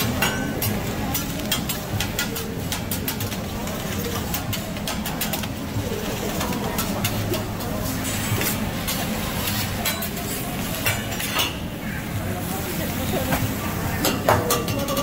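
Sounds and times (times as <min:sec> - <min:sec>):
diners chattering: 0:00.0 - 0:15.0
metal spatula scraping on griddle: 0:07.8 - 0:11.6.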